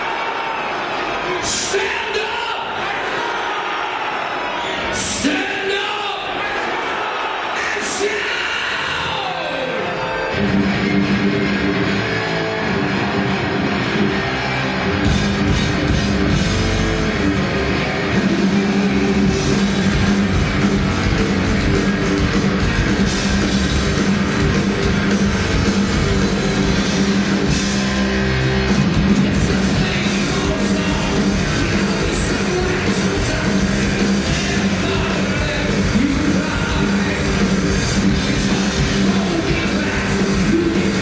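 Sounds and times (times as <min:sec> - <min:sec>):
distorted electric guitars: 0:07.8 - 0:41.0
drums and cymbals: 0:14.9 - 0:41.0.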